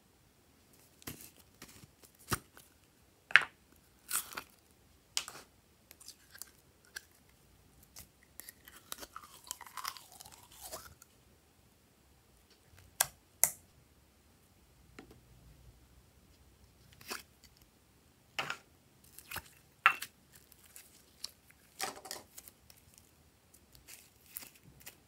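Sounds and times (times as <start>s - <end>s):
slime squelching: 19.0s - 25.0s.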